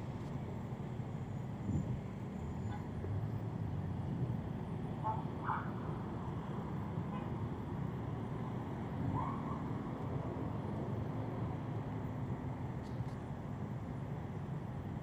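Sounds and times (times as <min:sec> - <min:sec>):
city road traffic: 0:00.0 - 0:15.0.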